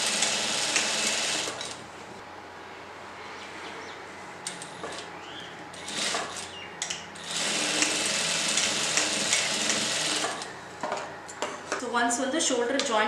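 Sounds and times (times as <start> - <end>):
industrial sewing machine running: 0.0 - 1.8, 5.8 - 6.5, 7.2 - 10.5.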